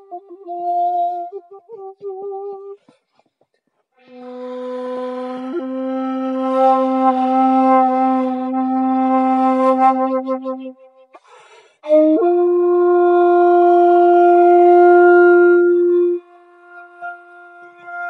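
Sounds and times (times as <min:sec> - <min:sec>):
bamboo flute held notes: 0:00.0 - 0:03.0, 0:04.0 - 0:11.2, 0:11.8 - 0:18.0
breath noise: 0:11.1 - 0:11.9.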